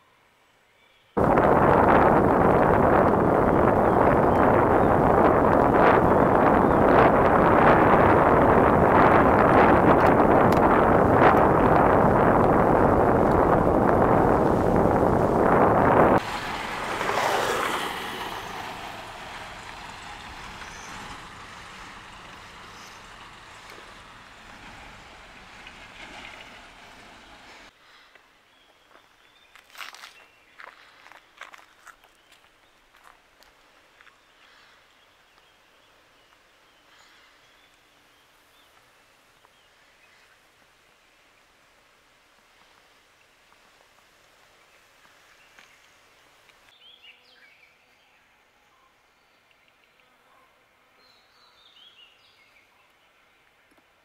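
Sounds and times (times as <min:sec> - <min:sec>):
faint forest ambience: 0:00.0 - 0:01.8, 0:03.1 - 0:54.0
wind and road rush: 0:01.2 - 0:27.8.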